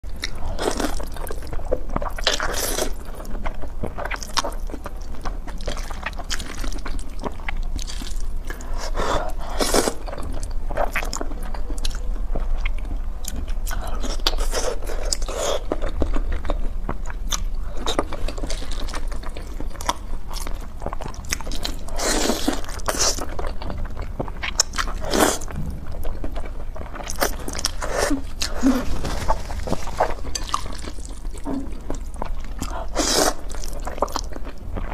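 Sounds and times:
steady low hum: 0.0s - 34.9s
noodles slurped and chewed: 26.2s - 34.9s.

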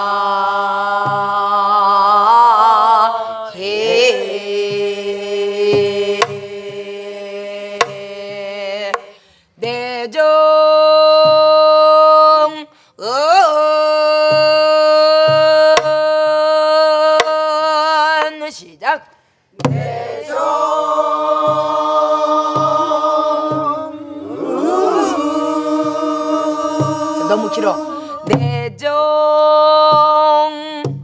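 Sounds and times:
person singing with vibrato: 0.0s - 18.4s, 19.9s - 30.9s
barrel drum thumps: 4.6s - 6.9s, 7.7s - 9.9s, 14.2s - 16.2s, 19.6s - 28.9s.

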